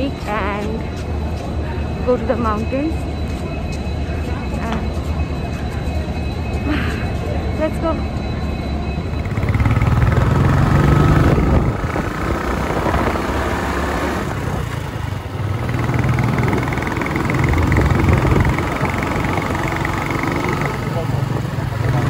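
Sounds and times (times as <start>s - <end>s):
road noise: 0.0s - 22.0s
motorcycle engine running: 9.0s - 22.0s.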